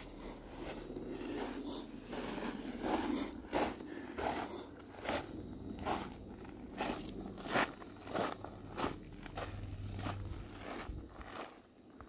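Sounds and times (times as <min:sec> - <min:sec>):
footsteps on sandy trail: 0:00.0 - 0:12.0.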